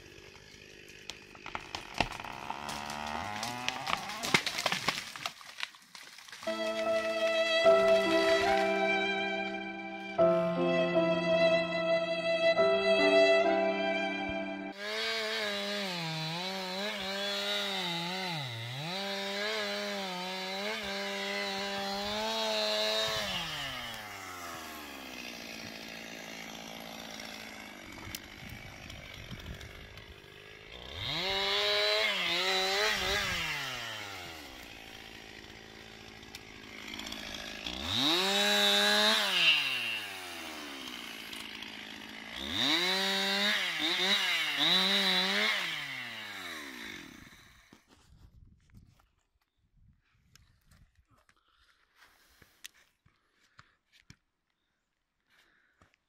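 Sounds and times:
chainsaw idling: 0:00.0 - 0:04.5, 0:06.5 - 0:10.4, 0:14.7 - 0:47.7
chainsaw revving and cutting: 0:00.0 - 0:05.2, 0:06.5 - 0:11.8, 0:12.6 - 0:47.9.

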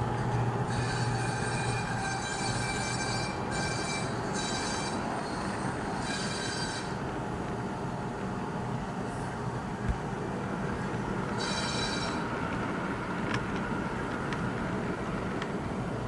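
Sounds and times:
model train cars rumbling on track: 0:00.0 - 0:16.0
high thin wheel squeal: 0:00.2 - 0:07.0, 0:11.3 - 0:12.4.

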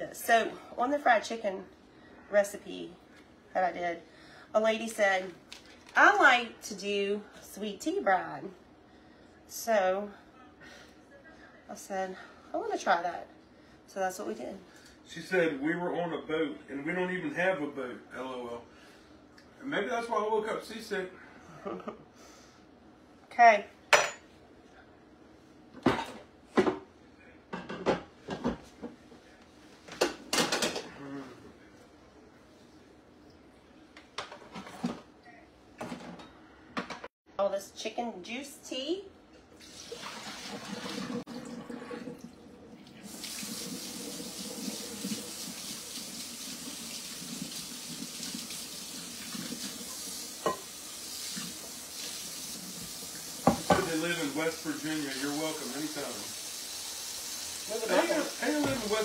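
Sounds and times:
dishes and utensils clattering: 0:25.8 - 0:26.8, 0:30.0 - 0:30.9, 0:50.4 - 0:50.7
liquid splashing into sink: 0:39.6 - 0:56.0
faucet water running into sink: 0:39.6 - 0:59.0.

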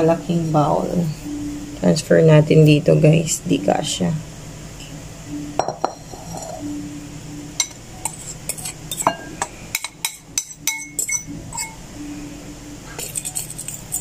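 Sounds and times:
fork clinking against ceramic bowls: 0:05.6 - 0:06.6, 0:07.6 - 0:11.8, 0:13.0 - 0:14.0.

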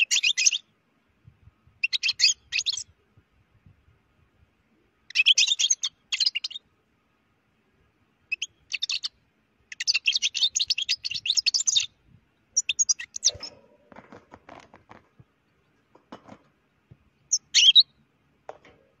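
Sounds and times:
finch twittering song: 0:00.0 - 0:00.7, 0:01.6 - 0:03.0, 0:05.0 - 0:06.7, 0:08.3 - 0:13.7, 0:16.7 - 0:18.0.

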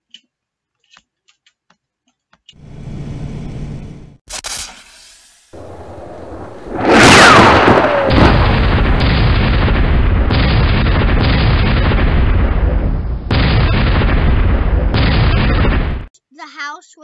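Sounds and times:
rumbling explosions: 0:05.6 - 0:16.1.

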